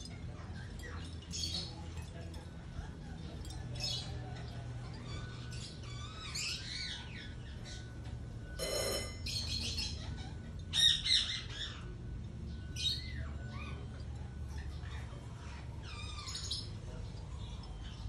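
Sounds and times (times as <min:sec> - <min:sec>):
parakeets chirping: 0:03.8 - 0:18.0.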